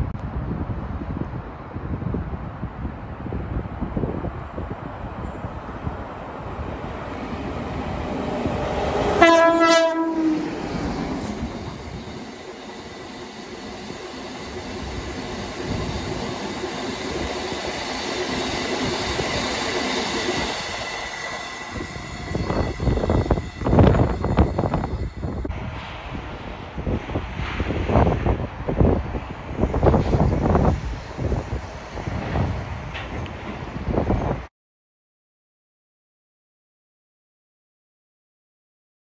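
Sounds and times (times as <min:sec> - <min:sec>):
train horn: 0:09.0 - 0:10.6.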